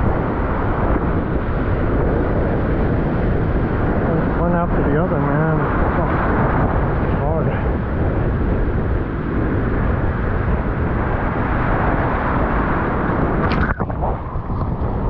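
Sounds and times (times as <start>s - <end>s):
wind buffeting microphone: 0.0s - 15.0s
breaking surf: 2.6s - 7.8s, 9.5s - 15.0s.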